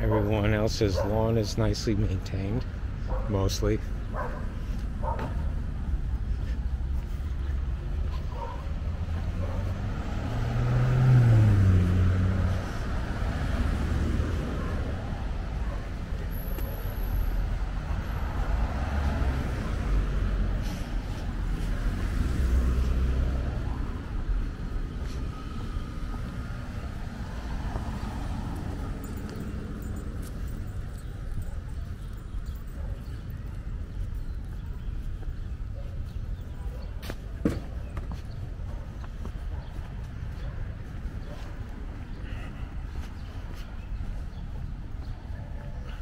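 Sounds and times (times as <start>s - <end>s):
rumble of cars: 0.0s - 46.0s
vehicle passing by: 4.6s - 35.4s.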